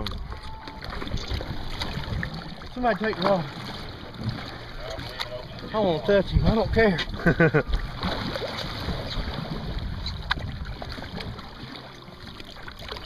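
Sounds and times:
wind on microphone: 0.0s - 2.7s, 6.0s - 11.6s
water sloshing and splashing: 0.0s - 13.0s.

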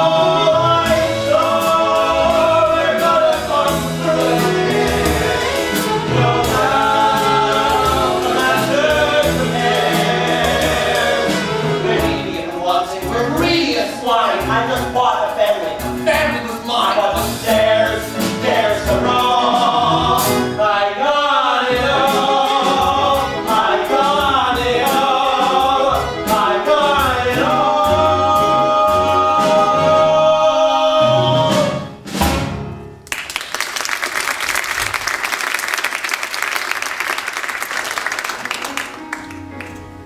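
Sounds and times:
live pit band: 0.0s - 20.8s, 21.7s - 32.9s
voices singing: 0.0s - 31.9s
audience applause: 33.0s - 39.9s.

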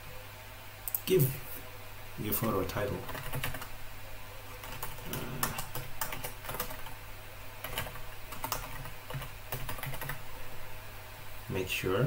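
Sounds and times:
keyboard typing: 3.0s - 3.7s, 4.6s - 7.0s, 7.6s - 10.2s.

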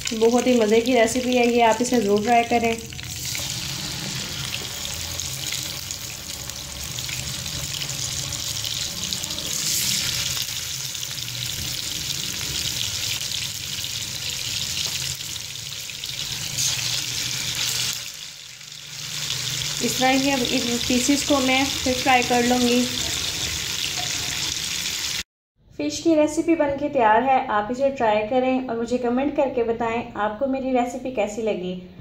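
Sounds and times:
fish sizzling in oil: 0.0s - 25.2s.

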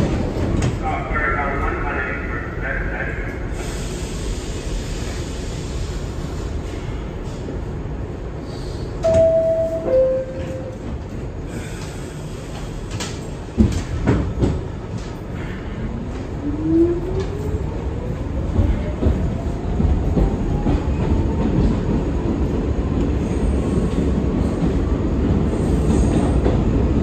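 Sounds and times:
subway train rumble: 0.0s - 27.0s
two-tone door chime: 9.0s - 10.7s.

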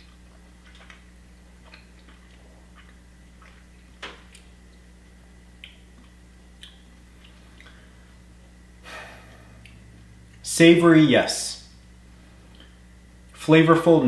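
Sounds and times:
man chewing food: 0.0s - 10.4s, 12.1s - 13.4s
low electrical hum: 0.0s - 14.0s
breath rush: 8.8s - 9.8s.

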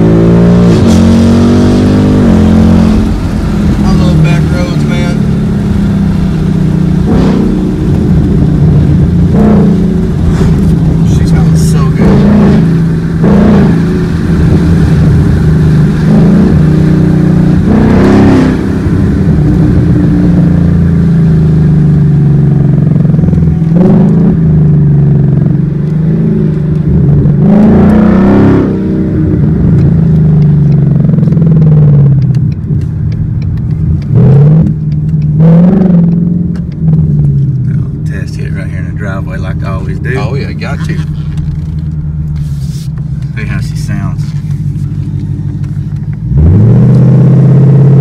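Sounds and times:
car exhaust drone: 0.0s - 48.0s.

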